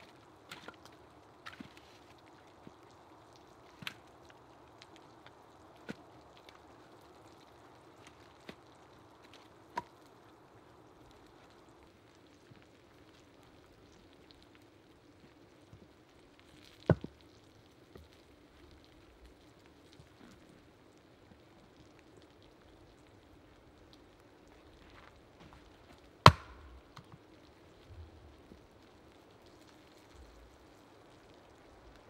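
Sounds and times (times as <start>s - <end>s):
sharp wooden knocks: 26.3s - 26.6s
hatchet chopping into log: 26.3s - 26.7s.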